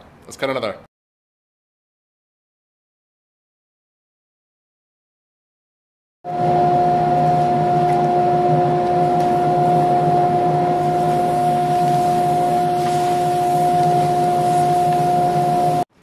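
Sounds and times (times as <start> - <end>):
dust collector whining: 6.3 - 15.9.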